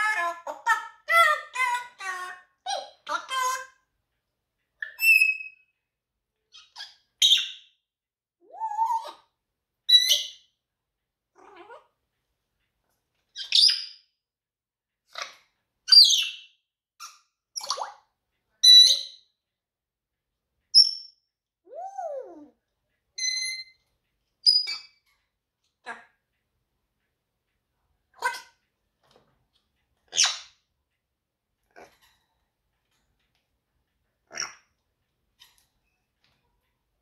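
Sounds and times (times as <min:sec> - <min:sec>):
parrot whistles clicks and squawks: 0:04.8 - 0:05.8, 0:23.2 - 0:25.0.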